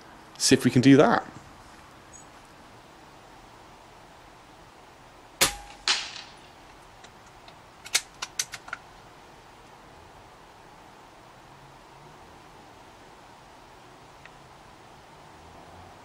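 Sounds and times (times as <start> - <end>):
air rifle shot crack: 5.4 - 6.4
metallic bolt clicks: 5.5 - 8.8.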